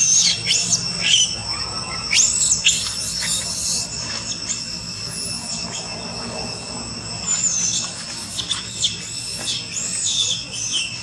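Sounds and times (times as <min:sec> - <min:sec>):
monkey screaming: 0:00.0 - 0:04.6.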